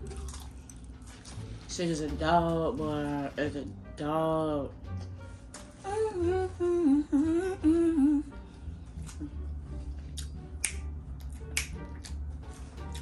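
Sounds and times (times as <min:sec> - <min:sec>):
low background beat: 0:00.0 - 0:13.0
person humming a tune: 0:05.8 - 0:09.6
finger snaps: 0:10.2 - 0:12.2.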